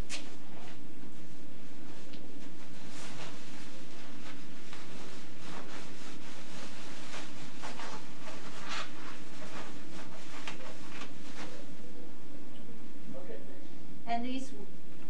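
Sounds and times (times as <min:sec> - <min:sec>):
coveralls rustling and crinkling: 0:00.0 - 0:11.9.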